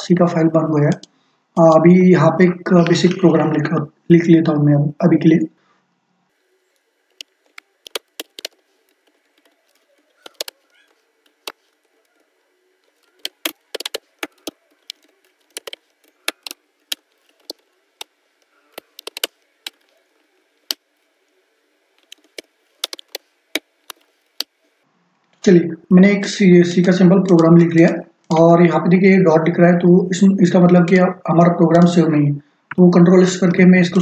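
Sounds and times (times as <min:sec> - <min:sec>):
computer keyboard typing: 0:07.2 - 0:11.6, 0:12.9 - 0:18.1, 0:18.7 - 0:19.9, 0:22.0 - 0:24.5.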